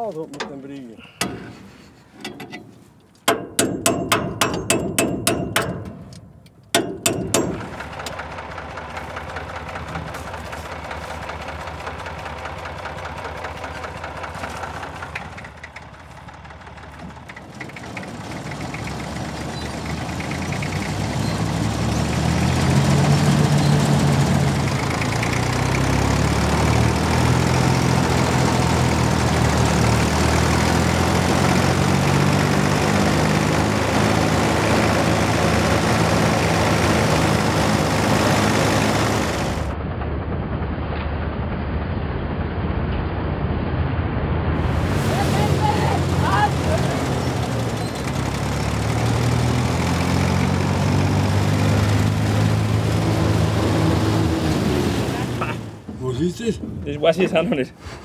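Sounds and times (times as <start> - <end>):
diesel tractor engine running: 0.0 - 58.0.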